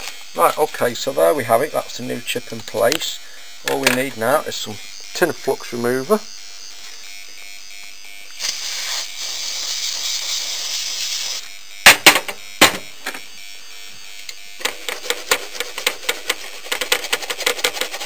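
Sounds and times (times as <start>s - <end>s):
toothbrush scrubbing circuit board: 8.3s - 11.5s, 14.6s - 18.0s
aerosol spray hissing: 8.4s - 11.5s.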